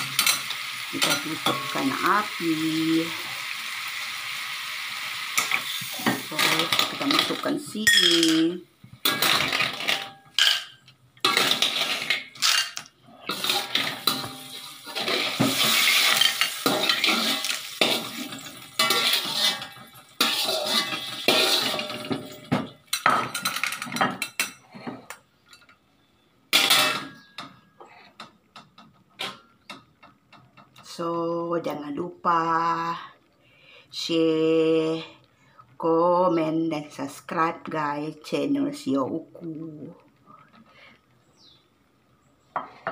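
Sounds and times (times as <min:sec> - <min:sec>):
metal ladle scraping a wok: 0:11.2 - 0:12.6, 0:13.3 - 0:22.1.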